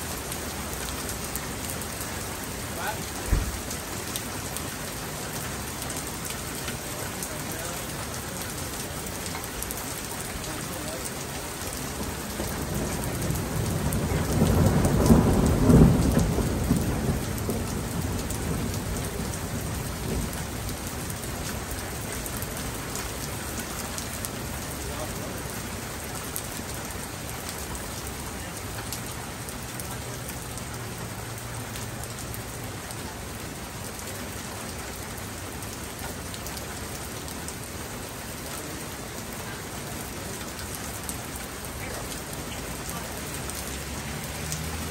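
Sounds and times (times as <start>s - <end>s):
steady rain falling: 0.0s - 44.9s
thunder rumbling: 12.0s - 20.7s.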